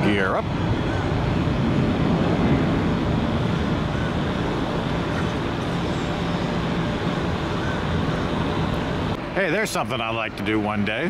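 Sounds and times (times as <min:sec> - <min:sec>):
jet engines rumbling: 0:00.0 - 0:11.0.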